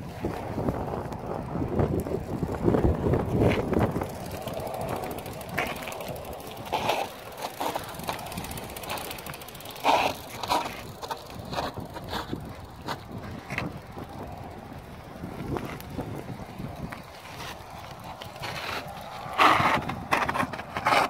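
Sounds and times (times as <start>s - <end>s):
bikes rattling over rocks: 0.0s - 21.0s.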